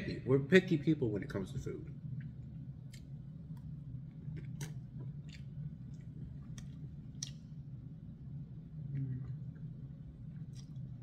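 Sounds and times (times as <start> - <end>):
steady low hum: 0.0 - 11.0
man chewing food: 2.0 - 7.9, 8.7 - 11.0
wet mouth clicks: 4.4 - 7.5.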